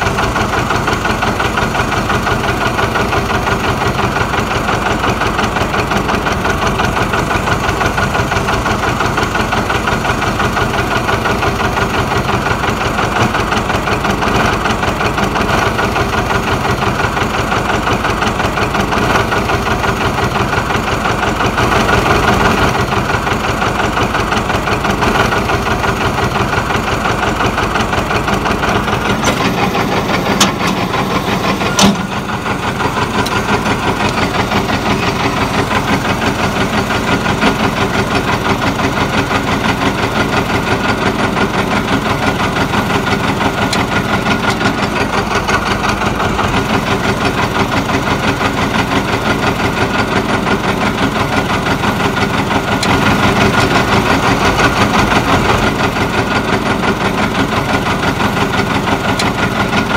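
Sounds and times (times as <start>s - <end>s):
diesel engine running: 0.0s - 59.9s
sharp clack: 29.1s - 32.5s.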